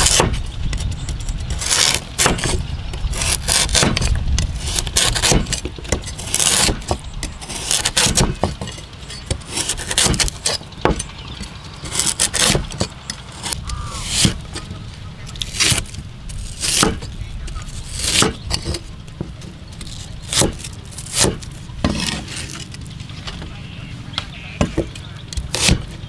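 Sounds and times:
cleaver chopping on wooden board: 0:00.0 - 0:00.4, 0:01.6 - 0:02.6, 0:03.2 - 0:14.4, 0:16.6 - 0:17.1, 0:17.9 - 0:22.2, 0:24.2 - 0:25.9.

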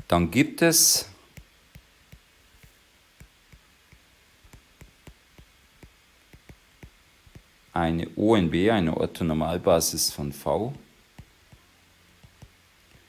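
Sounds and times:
stylus tapping on tablet screen: 0:01.3 - 0:07.6, 0:11.1 - 0:13.0.

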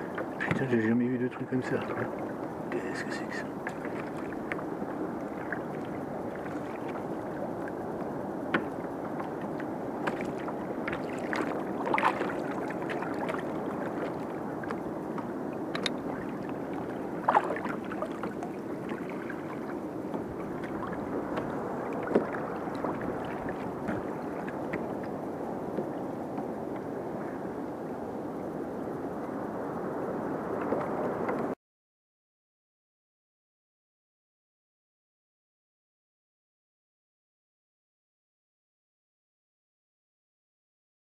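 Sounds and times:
small waves lapping hull: 0:00.0 - 0:31.6
water slaps: 0:09.5 - 0:19.7.

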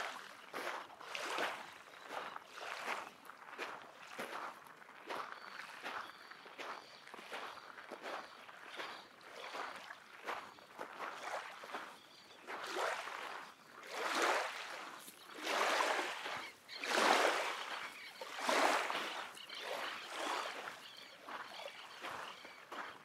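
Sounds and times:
waves washing onto shore: 0:12.6 - 0:21.4.

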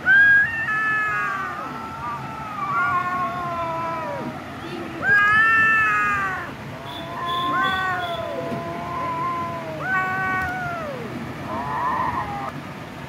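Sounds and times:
cats meowing: 0:00.0 - 0:12.5.

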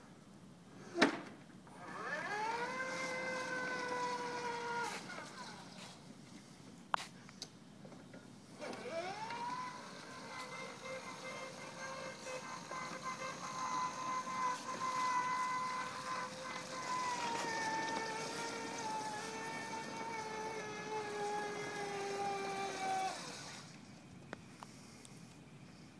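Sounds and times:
electric motor whine: 0:01.7 - 0:05.8, 0:08.5 - 0:23.9.

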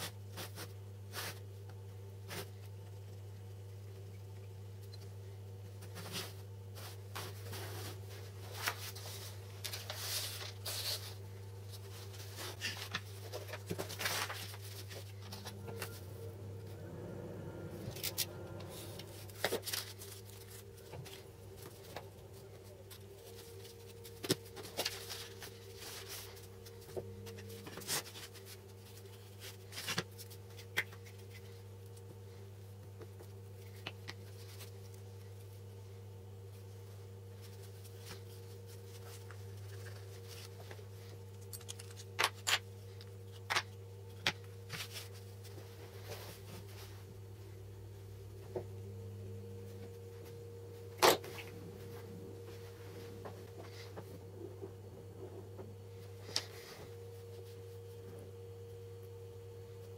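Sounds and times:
steady low hum: 0:00.0 - 0:59.9
paper rustling on a table: 0:05.8 - 0:16.1, 0:18.0 - 0:31.6, 0:43.4 - 0:47.0.

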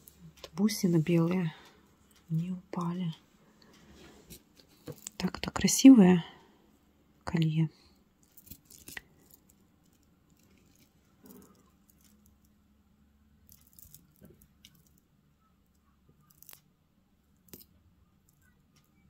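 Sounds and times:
beads and chain clicking: 0:08.2 - 0:12.5, 0:13.4 - 0:15.0, 0:16.2 - 0:16.7, 0:17.4 - 0:18.9.

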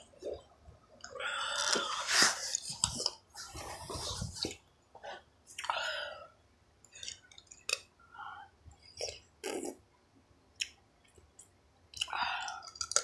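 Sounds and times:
person chewing: 0:10.6 - 0:13.0.

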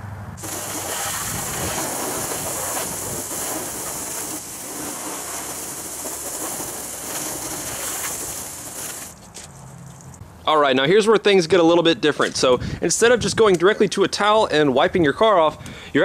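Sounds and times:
hose spraying water on car: 0:00.4 - 0:09.2.

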